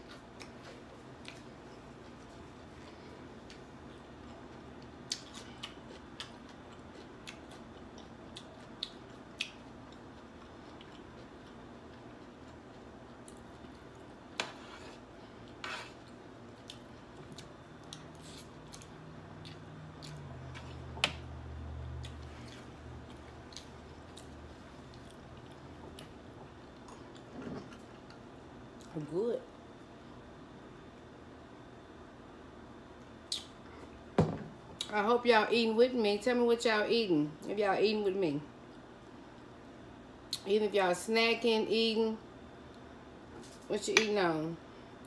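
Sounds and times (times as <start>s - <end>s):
person chewing: 3.4s - 14.1s, 15.4s - 21.0s, 21.9s - 28.2s.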